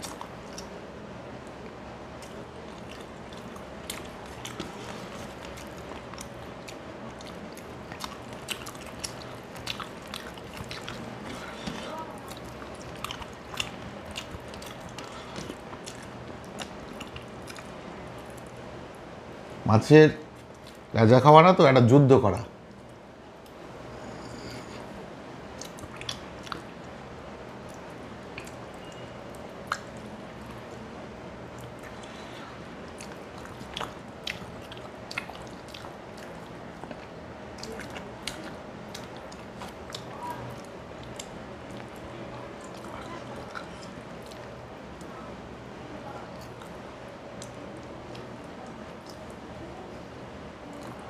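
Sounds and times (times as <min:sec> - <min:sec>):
person chewing food: 0:00.0 - 0:00.8, 0:01.4 - 0:18.6, 0:22.7 - 0:27.0, 0:27.6 - 0:30.8, 0:31.4 - 0:45.1, 0:50.7 - 0:51.0
faint low hum: 0:00.0 - 0:51.0
small mouth clicks and smacks: 0:25.5 - 0:26.7, 0:27.6 - 0:29.0, 0:29.6 - 0:30.7, 0:47.4 - 0:49.4
wet mouth clicks and smacks: 0:29.6 - 0:30.0.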